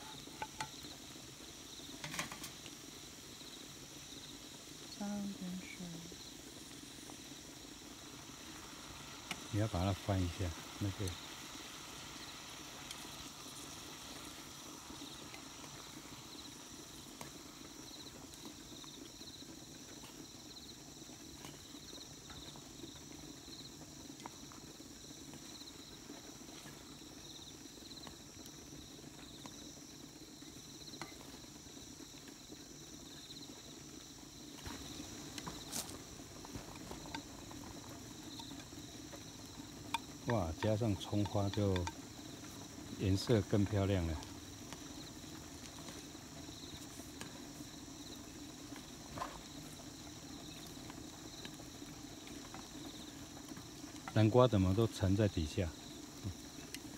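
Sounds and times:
crickets chirping: 0.0s - 56.9s
utensils clicking on pot: 39.7s - 43.6s.

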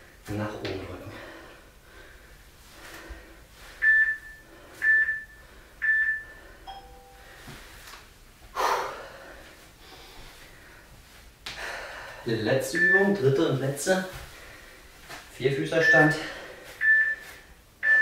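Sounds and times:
short high beeps: 3.8s - 7.2s
lower chime: 6.6s - 7.4s.

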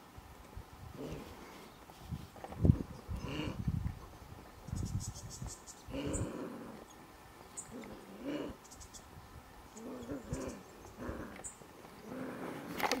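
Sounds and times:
wallaby low throaty calls: 3.1s - 3.7s, 5.9s - 6.9s, 7.7s - 8.7s, 9.7s - 13.0s.

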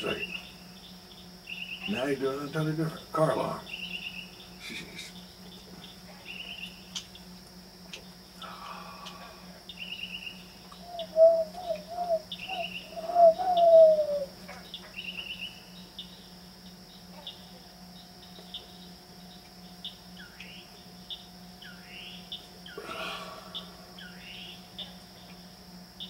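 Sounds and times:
mockingbird singing trilled phrases: 3.6s - 4.6s, 9.7s - 16.2s
low hooting bird notes: 8.4s - 15.8s.

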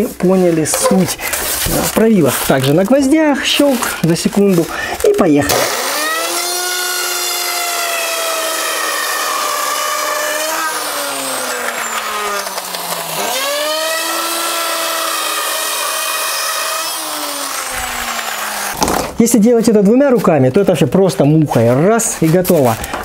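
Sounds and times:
electric router cutting foam: 5.2s - 18.9s.

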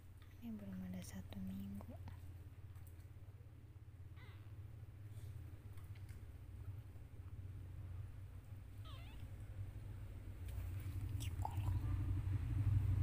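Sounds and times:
low steady rumble: 0.0s - 13.0s
kitten mewing: 8.8s - 9.3s, 11.1s - 12.0s.

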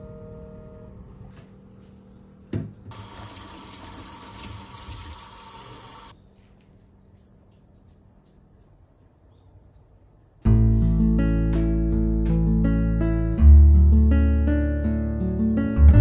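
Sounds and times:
tap water running into colander: 2.9s - 6.1s
acoustic guitar music: 10.5s - 16.0s.

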